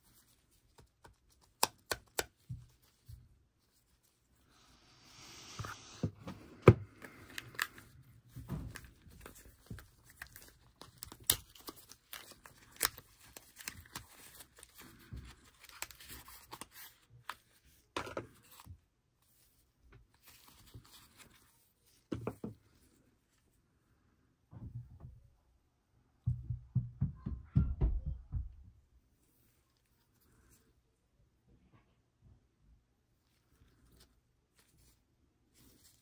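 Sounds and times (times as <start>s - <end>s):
paper rustling and crinkling: 6.9s - 23.0s, 33.2s - 36.0s.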